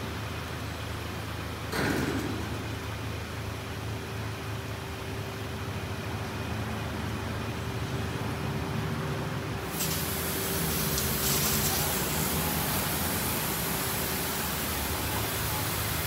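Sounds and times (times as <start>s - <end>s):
car wash machinery whining: 0.0s - 16.0s
water spray hiss: 9.7s - 16.0s.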